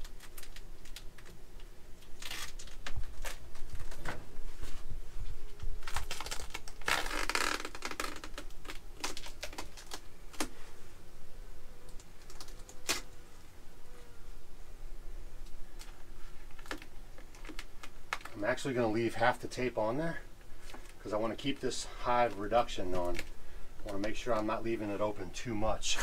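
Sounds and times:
tape ripping: 0:00.0 - 0:01.4, 0:02.0 - 0:04.2, 0:05.5 - 0:10.6, 0:11.9 - 0:13.2, 0:15.8 - 0:18.4, 0:22.3 - 0:24.2
tape peeling with crackling clicks: 0:00.0 - 0:04.2, 0:05.4 - 0:10.6, 0:11.8 - 0:13.2, 0:15.4 - 0:18.4, 0:20.5 - 0:24.5.

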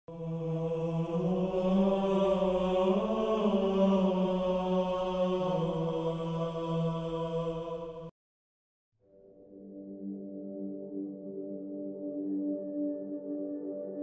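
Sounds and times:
deep chanting voices: 0:00.1 - 0:08.1.

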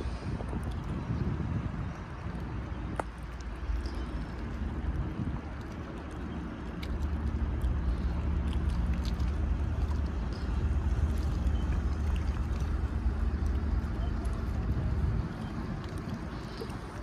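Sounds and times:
low marine engine rumble: 0:00.0 - 0:17.0
water splashing: 0:00.0 - 0:17.0.

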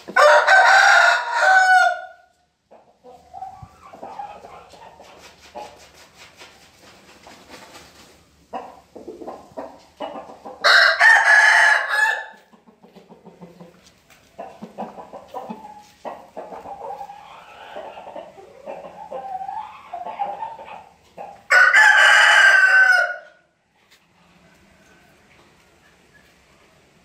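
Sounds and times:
chicken clucking: 0:00.0 - 0:01.8, 0:02.6 - 0:26.8
rooster crowing: 0:00.1 - 0:02.2, 0:10.6 - 0:12.4, 0:21.5 - 0:23.4.

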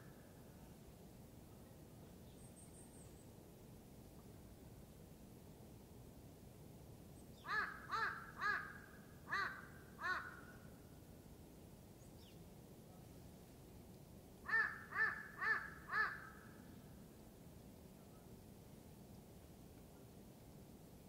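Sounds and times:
crow cawing: 0:07.5 - 0:10.5, 0:14.5 - 0:16.5.

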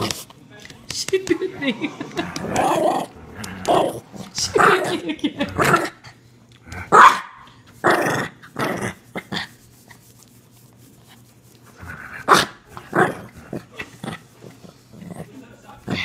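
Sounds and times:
small dog growling: 0:01.6 - 0:07.0, 0:11.8 - 0:16.0
small dog barking: 0:06.9 - 0:07.5.

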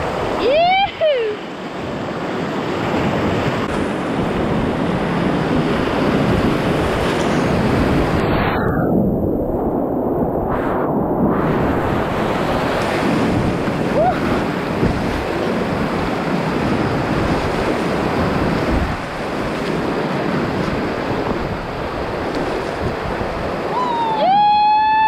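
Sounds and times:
wind buffeting microphone: 0:01.8 - 0:25.0
river rapids rushing: 0:12.4 - 0:25.0.

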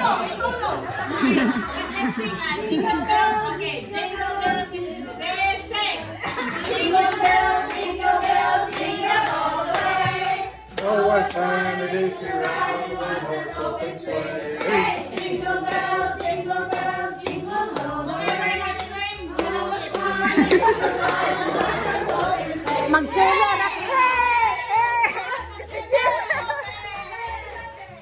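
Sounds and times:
group of people singing: 0:00.0 - 0:28.0
hands clapping in time: 0:06.3 - 0:23.0.

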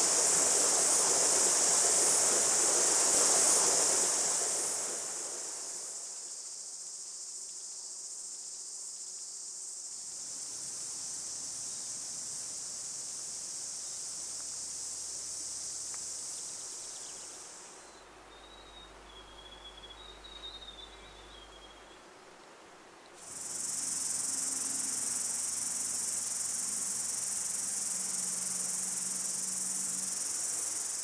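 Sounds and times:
rushing water: 0:00.0 - 0:06.3
high-pitched insect chorus: 0:00.0 - 0:22.1, 0:23.1 - 0:31.0.

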